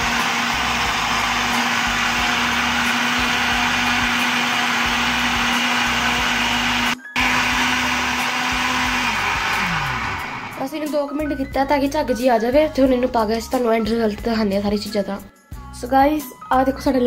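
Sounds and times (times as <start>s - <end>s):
blender running: 0.0s - 10.7s.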